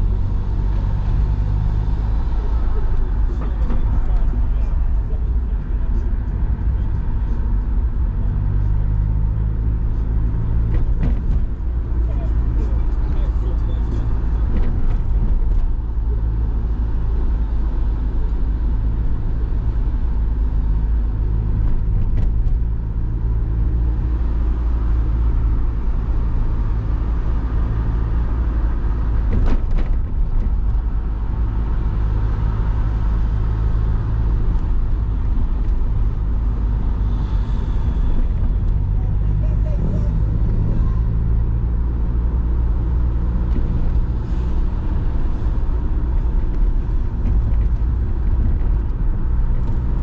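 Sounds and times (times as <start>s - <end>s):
car engine and road noise: 0.0s - 50.0s.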